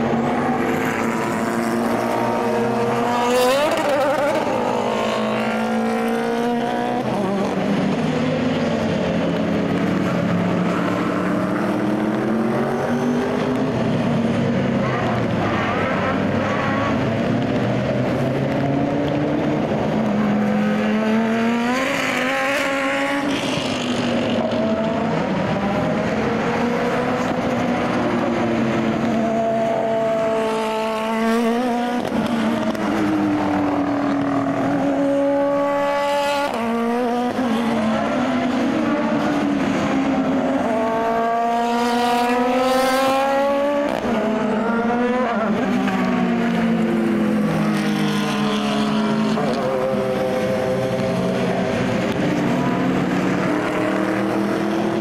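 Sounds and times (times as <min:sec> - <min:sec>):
race car engines accelerating: 0:00.0 - 0:55.0.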